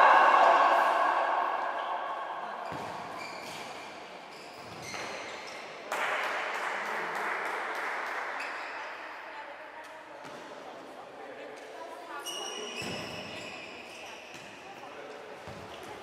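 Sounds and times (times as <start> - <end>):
noisy sports hall: 0.0 - 16.0
shoe squeaks on hall floor: 2.6 - 5.8, 12.1 - 14.8.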